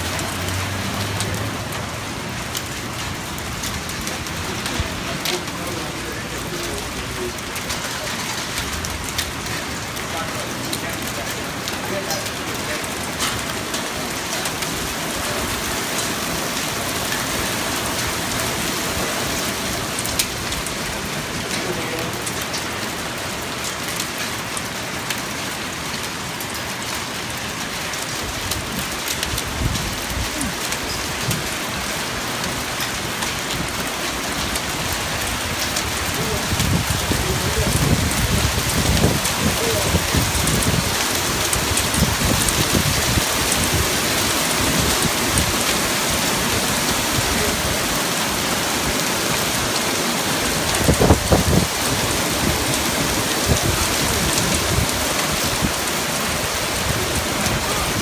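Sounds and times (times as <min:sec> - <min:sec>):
heavy rain on pavement: 0:00.0 - 0:58.0.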